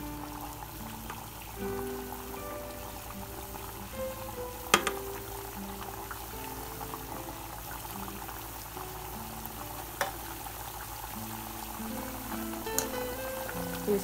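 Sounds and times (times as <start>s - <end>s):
hot oil bubbling and crackling: 0.0s - 14.0s
soft background music: 0.0s - 14.0s
sharp tap: 4.8s - 5.0s.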